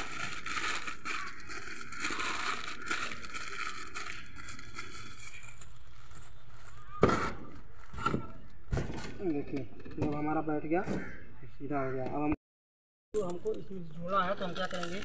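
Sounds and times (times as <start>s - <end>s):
paper crinkling and rustling: 0.0s - 8.6s, 14.3s - 15.0s.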